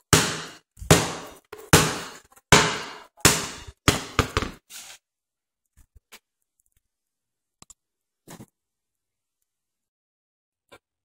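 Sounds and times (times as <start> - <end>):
basketball bouncing on hardwood: 0.1 - 4.6.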